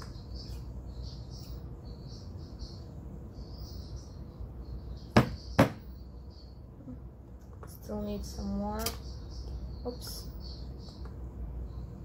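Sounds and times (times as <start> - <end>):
high chirping: 0.0 - 7.1
low steady hum: 0.0 - 12.0.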